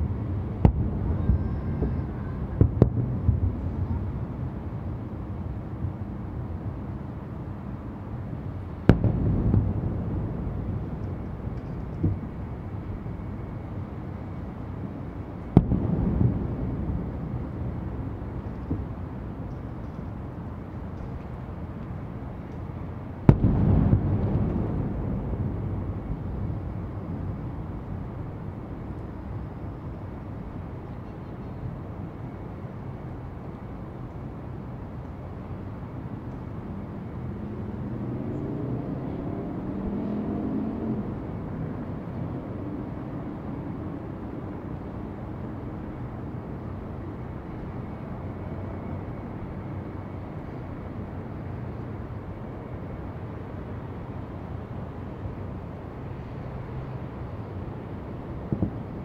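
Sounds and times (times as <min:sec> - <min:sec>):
city traffic rumble: 0:00.0 - 0:59.0
vehicle engine passing by: 0:37.8 - 0:41.2.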